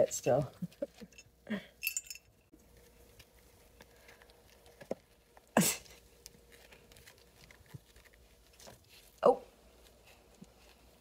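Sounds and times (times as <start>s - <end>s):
kittens scrabbling on crinkly pads: 2.7s - 11.0s.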